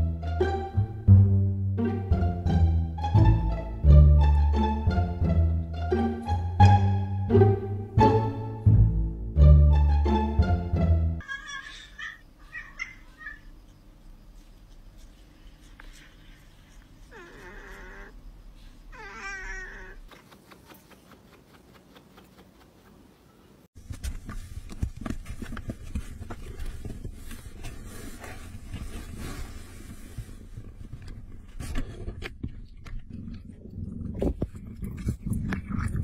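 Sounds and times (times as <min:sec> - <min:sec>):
close rustling and scratching: 0:12.5 - 0:36.0
cat meowing: 0:18.9 - 0:20.0.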